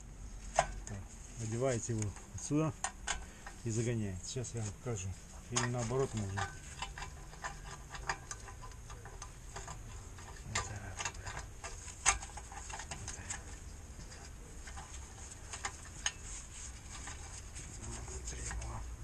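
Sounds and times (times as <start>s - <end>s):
metallic clicks of brake parts: 1.9s - 3.6s, 5.5s - 16.3s.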